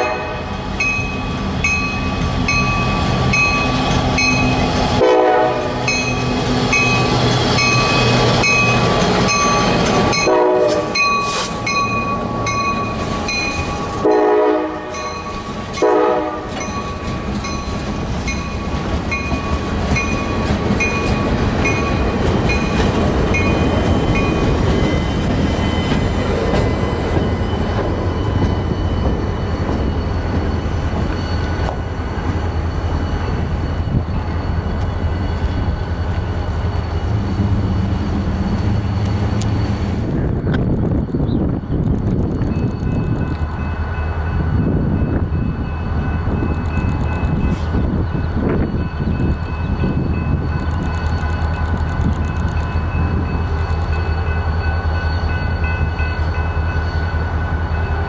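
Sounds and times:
locomotive horn blasts: 0.0 - 0.6, 5.0 - 6.0, 10.1 - 11.1, 14.0 - 15.2, 15.8 - 16.6
train rumbling past: 0.0 - 58.0
bell ringing: 5.9 - 10.4, 11.0 - 14.3, 14.9 - 15.9.

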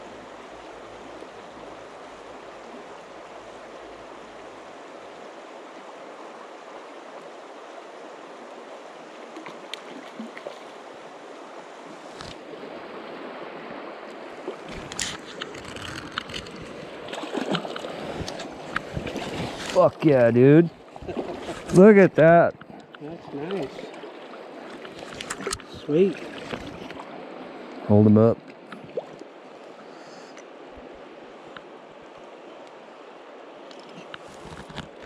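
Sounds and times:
river water running over stones: 0.0 - 35.0
net splashing in water: 15.6 - 19.8.

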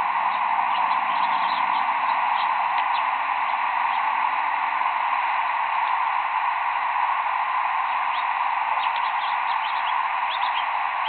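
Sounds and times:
steady hiss: 0.0 - 11.0
high bird flight calls: 0.7 - 3.1, 8.8 - 10.7.

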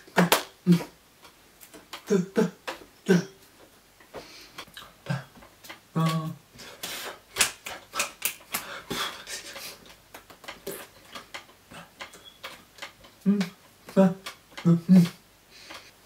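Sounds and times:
hands clapping and tapping: 0.1 - 0.6, 7.4 - 8.7
short voiced hum: 2.1 - 3.4, 13.2 - 15.2
breaths: 4.1 - 5.2, 7.9 - 9.8, 15.5 - 16.0
mouth clicks: 4.6 - 15.9.

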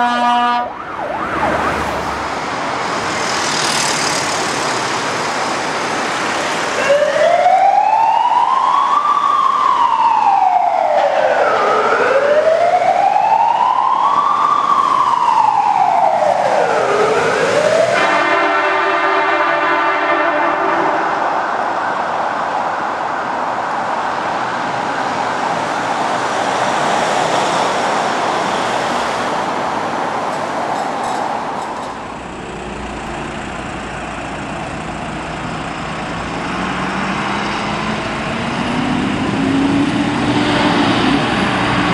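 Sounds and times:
steady horn note: 0.0 - 0.8, 18.0 - 21.2
fire truck siren wailing: 0.0 - 2.9, 4.8 - 28.2
street noise: 0.0 - 41.9
vehicle engine accelerating: 32.1 - 41.9.

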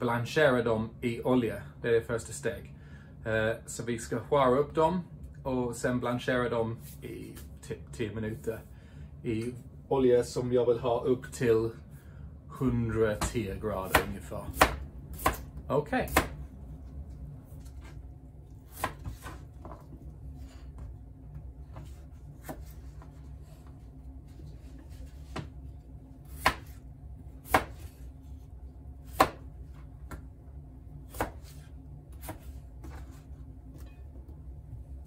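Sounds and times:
knife chopping on cutting board: 13.2 - 16.4, 18.7 - 19.8, 21.7 - 23.2, 26.2 - 26.8, 27.4 - 28.0, 29.0 - 30.3, 31.0 - 33.2
low hum: 14.7 - 35.0.

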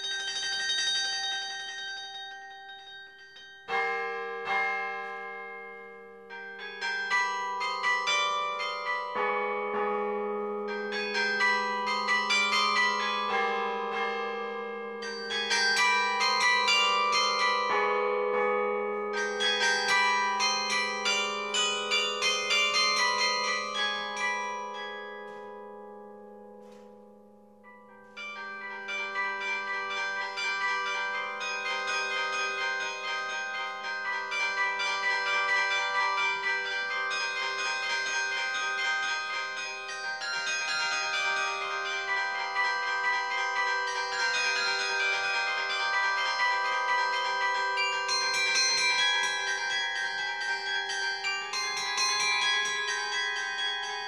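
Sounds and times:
carillon bells playing: 0.0 - 54.0.

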